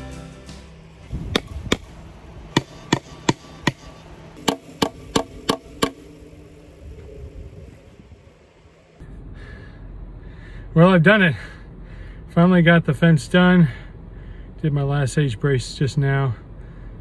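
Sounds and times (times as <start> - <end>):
hammer striking wooden post: 1.3 - 1.9, 2.5 - 6.0.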